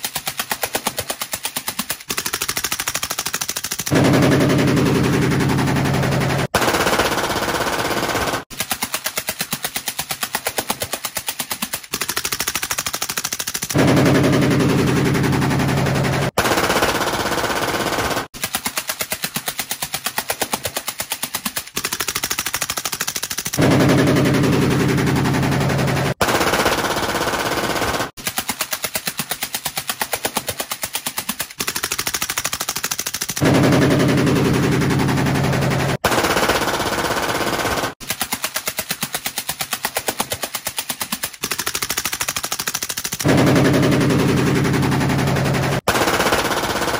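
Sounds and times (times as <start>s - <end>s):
pistol full-auto burst: 2.1s - 8.5s, 11.9s - 18.4s, 21.8s - 28.2s, 31.6s - 38.0s, 41.4s - 46.9s
suppressed rifle automatic fire: 2.1s - 8.5s, 12.0s - 18.4s, 21.8s - 28.1s, 31.6s - 38.0s, 41.4s - 46.9s.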